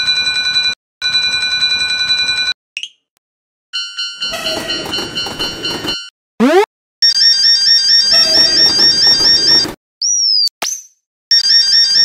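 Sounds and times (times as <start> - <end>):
railroad crossing bell ringing: 3.8 - 6.1, 8.1 - 9.5.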